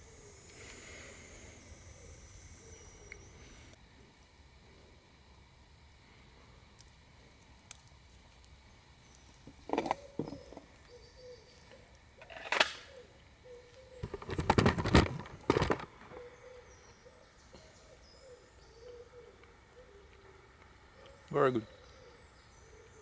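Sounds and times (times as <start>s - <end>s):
faint bird calls: 9.1s - 14.1s, 16.0s - 23.0s
close crackling and rustling: 14.0s - 16.2s.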